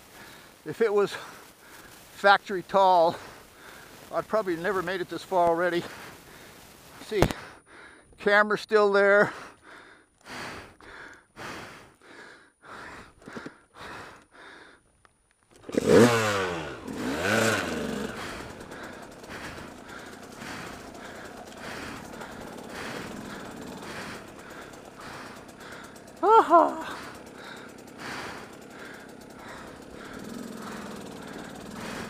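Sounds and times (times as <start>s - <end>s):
person breathing hard: 0.0s - 2.2s, 2.8s - 4.5s, 5.3s - 8.2s, 9.2s - 15.0s, 16.2s - 32.0s
dirt bike engine starting and revving: 0.0s - 7.6s, 15.5s - 32.0s.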